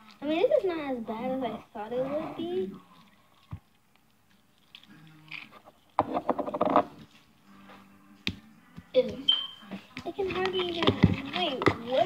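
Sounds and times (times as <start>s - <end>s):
slime squelching and crackling: 0.0s - 6.0s, 9.8s - 12.0s.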